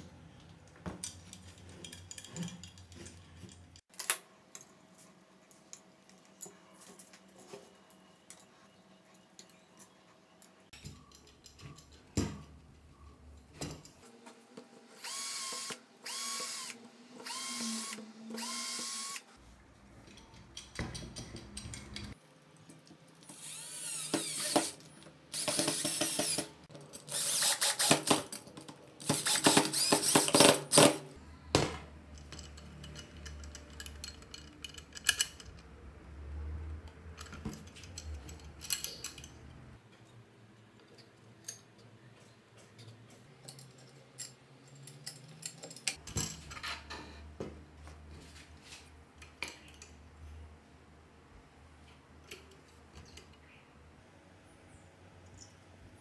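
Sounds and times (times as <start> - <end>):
power drill whirring: 15.0 - 19.3, 23.3 - 24.8, 25.4 - 26.5, 27.1 - 28.0, 29.0 - 30.4.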